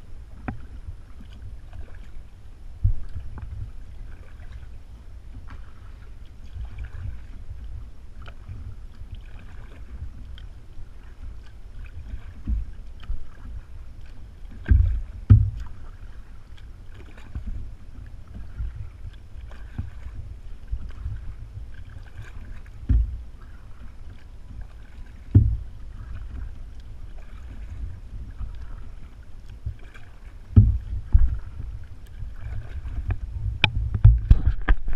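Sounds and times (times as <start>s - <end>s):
paddle swishing through water: 0.0s - 34.9s
wind rumble on microphone: 0.0s - 34.9s
heavy low thumps: 14.7s - 15.6s, 22.8s - 23.3s, 25.2s - 25.9s, 30.5s - 31.8s, 33.1s - 34.9s.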